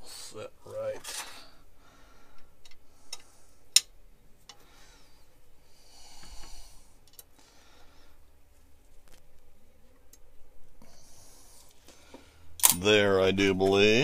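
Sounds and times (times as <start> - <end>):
soft breathing: 1.1 - 3.8, 4.4 - 8.7, 10.6 - 12.6.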